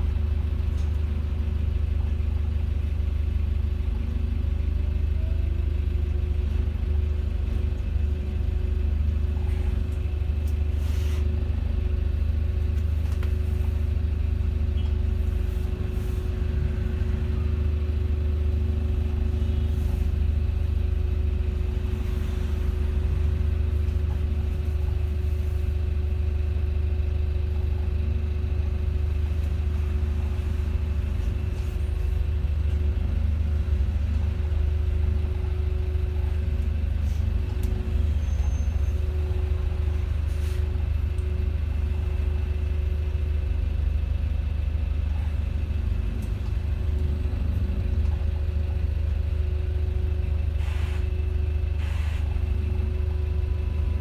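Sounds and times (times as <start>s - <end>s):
bus engine rumble: 0.0s - 54.0s
constant whine: 0.0s - 54.0s.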